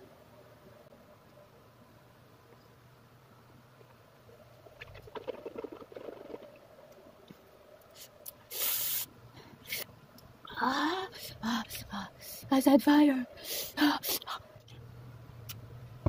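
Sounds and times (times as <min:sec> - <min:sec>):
breath hissing through mouth: 0:08.0 - 0:09.9.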